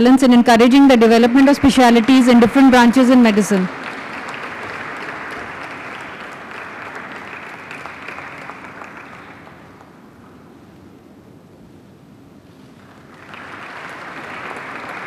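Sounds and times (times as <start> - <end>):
audience applauding: 0.9 - 10.3, 12.8 - 15.0.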